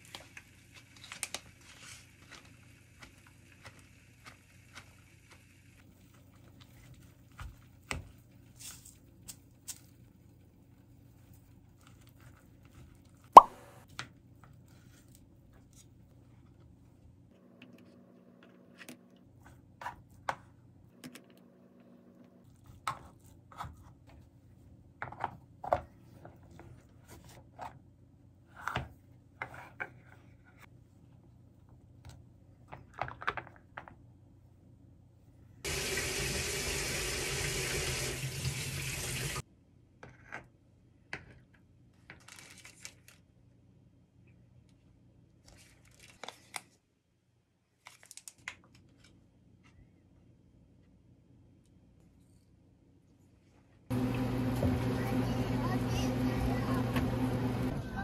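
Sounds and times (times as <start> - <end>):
water tap running: 35.7 - 39.4, 53.9 - 57.7.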